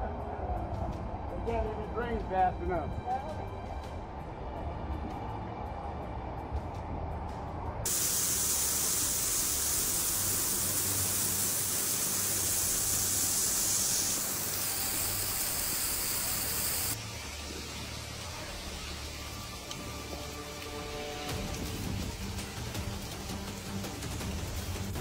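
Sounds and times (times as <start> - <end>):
heavy rain pouring: 7.9 - 25.0.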